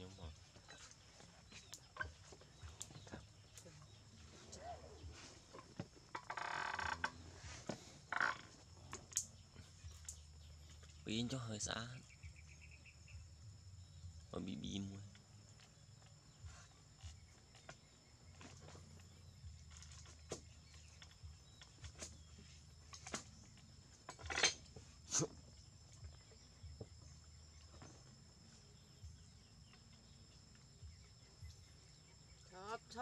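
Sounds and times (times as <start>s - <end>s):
steady low hum: 6.9s - 33.0s.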